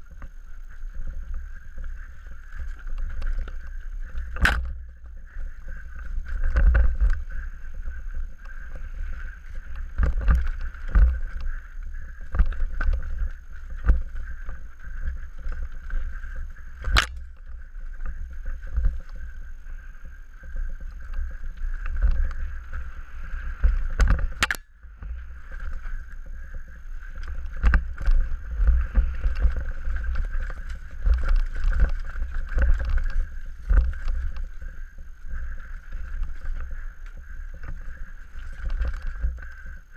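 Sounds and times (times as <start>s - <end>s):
bike tyres rumbling on dirt: 0.0s - 39.9s
bike knocking and clattering: 1.8s - 19.4s.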